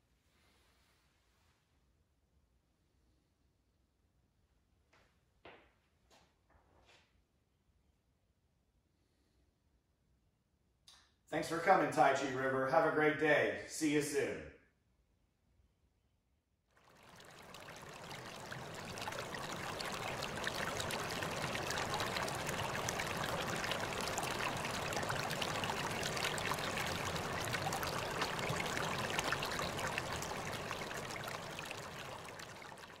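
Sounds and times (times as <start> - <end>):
stream water rushing: 16.8 - 33.0.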